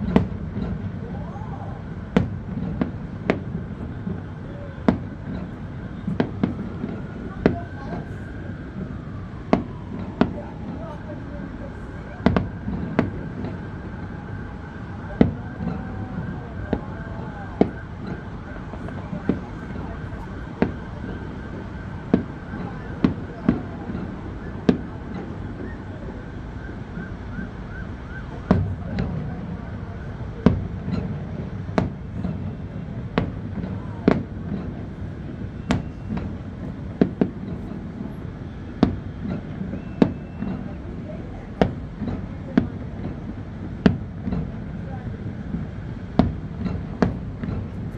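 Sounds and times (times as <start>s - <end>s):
fireworks booming: 0.0s - 47.9s
low background noise: 0.0s - 47.9s
faint wail: 1.0s - 2.0s.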